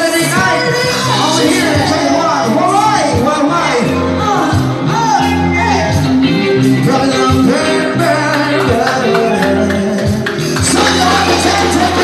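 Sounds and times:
band music with singer: 0:00.0 - 0:12.0.

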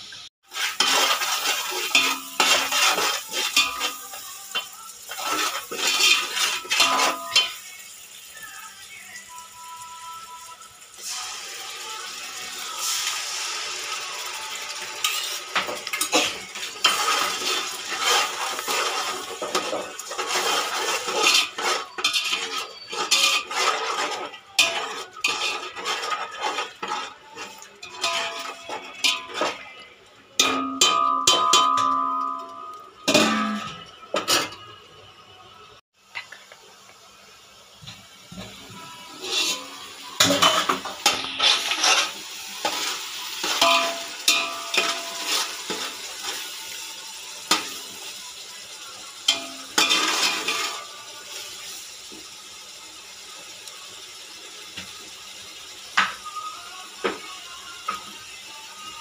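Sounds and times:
ladle scraping metal pot: 0:00.5 - 0:04.0, 0:05.1 - 0:07.5, 0:15.0 - 0:29.8, 0:39.1 - 0:45.9.

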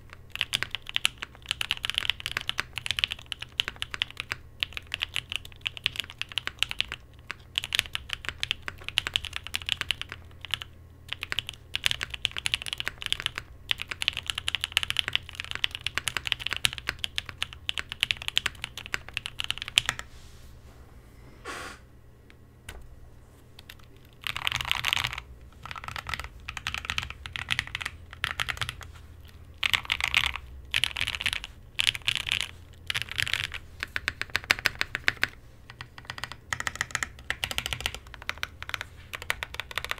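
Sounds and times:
mechanical keyboard typing: 0:00.0 - 0:20.1, 0:23.6 - 0:39.9.

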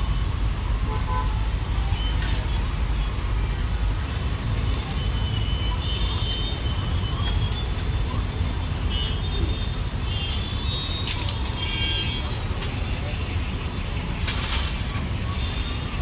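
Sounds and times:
street traffic rumble: 0:00.0 - 0:16.0.

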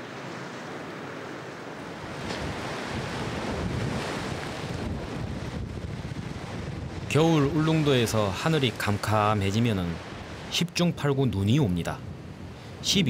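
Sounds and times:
sea waves washing on shore: 0:00.0 - 0:13.0
wind buffeting microphone: 0:02.0 - 0:10.5, 0:11.5 - 0:13.0.

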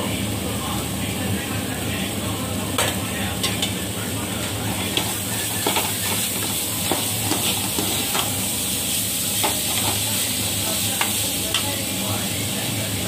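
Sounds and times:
steady low hum: 0:00.0 - 0:13.0
vegetables sizzling in a pan: 0:00.1 - 0:13.0.

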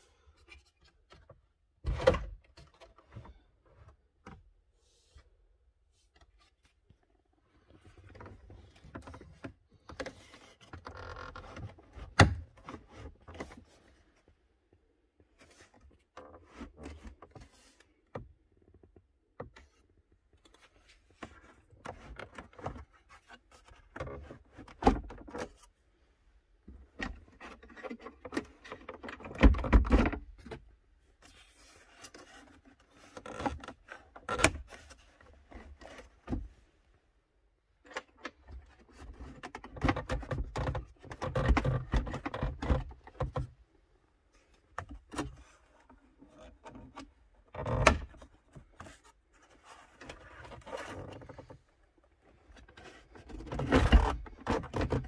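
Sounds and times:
plastic parts clicking and rubbing: 0:37.8 - 0:43.6, 0:44.4 - 0:55.0.

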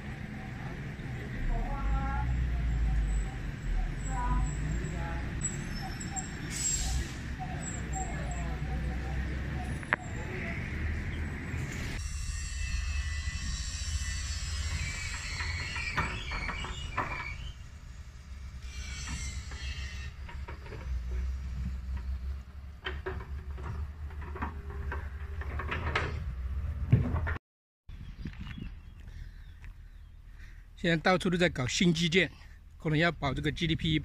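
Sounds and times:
passing traffic hiss: 0:06.4 - 0:07.4.

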